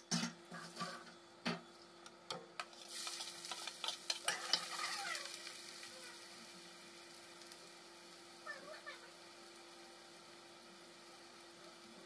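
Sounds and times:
fritters sizzling in hot oil: 2.6s - 12.0s.

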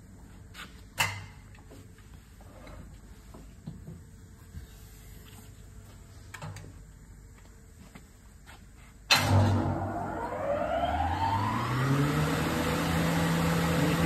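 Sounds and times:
planer idling hum: 9.3s - 14.0s.

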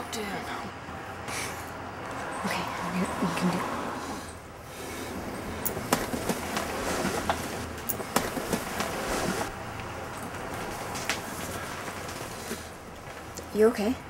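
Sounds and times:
bus low rumble: 0.0s - 14.0s
footsteps on bus aisle: 5.0s - 13.6s.

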